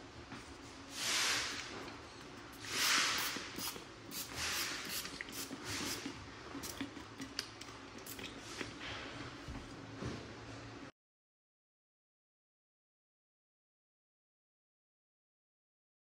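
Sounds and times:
spray hissing: 0:02.6 - 0:06.0.

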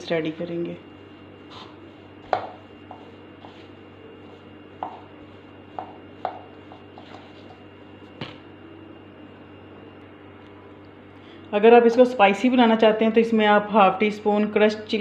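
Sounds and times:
spoon mixing mashed potato: 0:00.8 - 0:08.2.

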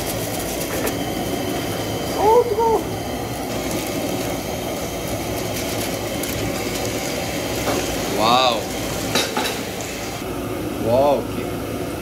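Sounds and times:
broth boiling in a pan: 0:00.0 - 0:12.0
man saying wow: 0:02.2 - 0:02.9.

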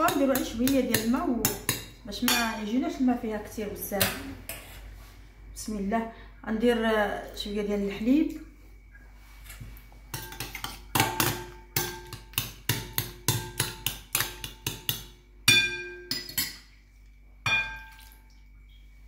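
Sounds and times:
spoon clinking glass bowl: 0:10.1 - 0:16.8, 0:17.4 - 0:18.3.

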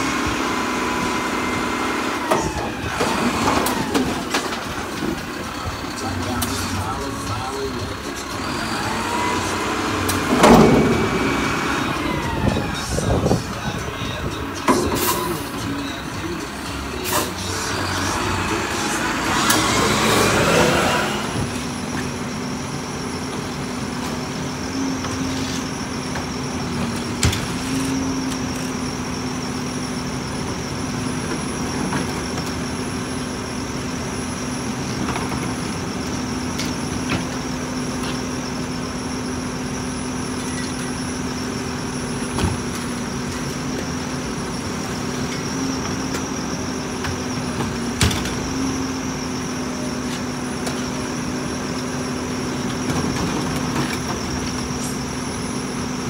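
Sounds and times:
garbage truck idling: 0:00.0 - 0:56.0
high whine: 0:01.0 - 0:56.0
loud rushing noise: 0:08.6 - 0:13.8.

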